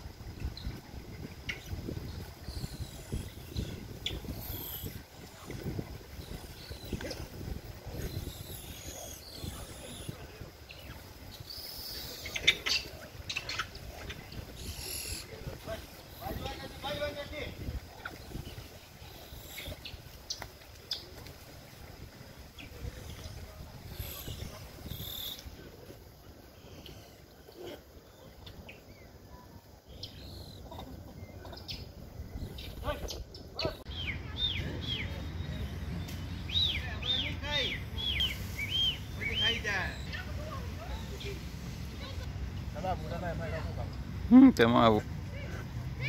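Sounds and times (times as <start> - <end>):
wind rumble on microphone: 0.0 - 20.3, 21.1 - 27.1, 30.5 - 36.8
faint insect hum: 0.0 - 46.0
high chirping calls: 1.5 - 21.1, 29.9 - 42.2.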